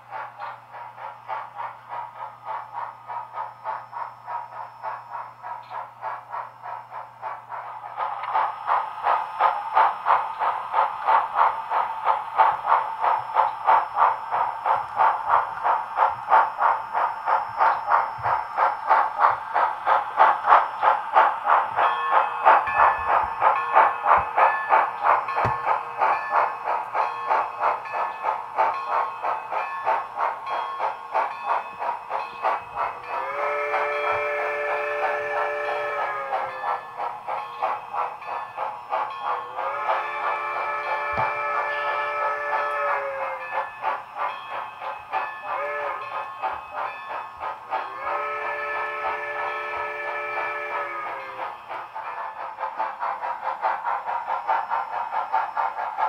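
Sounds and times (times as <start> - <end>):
model steam locomotive chuffing: 0.0 - 56.0
steam whistle blowing: 33.1 - 36.6, 39.6 - 43.4, 45.6 - 46.2, 47.8 - 51.5.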